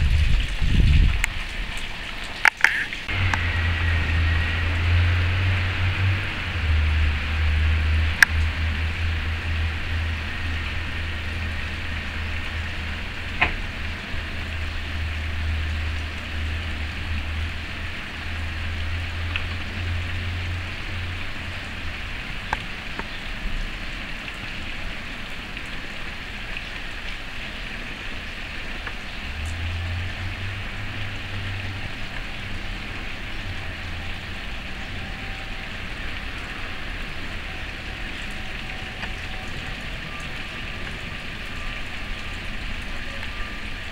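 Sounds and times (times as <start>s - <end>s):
steady rain hiss: 0.0s - 43.9s
single raindrop ticks: 1.2s - 3.4s, 8.2s - 8.6s
low rumble: 3.1s - 22.4s.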